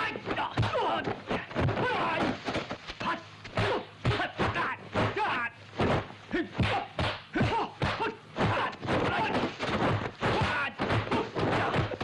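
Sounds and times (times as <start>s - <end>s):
fighters shouting and grunting: 0.0s - 2.4s, 3.0s - 5.6s, 6.3s - 12.0s
punch and kick impacts: 5.8s - 12.0s.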